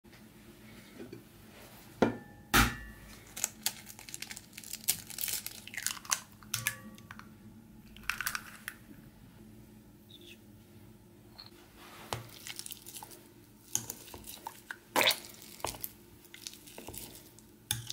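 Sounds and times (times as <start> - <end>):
eggshell crackling: 3.1 - 8.9, 12.2 - 17.9.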